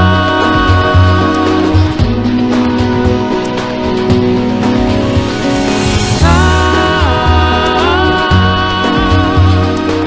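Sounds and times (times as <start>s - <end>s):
woman singing: 0.0s - 1.9s, 6.2s - 10.0s
pop band playing: 0.0s - 10.0s.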